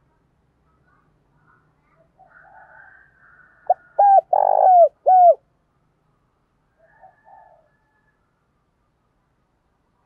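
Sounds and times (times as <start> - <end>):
dove cooing: 3.7 - 5.4.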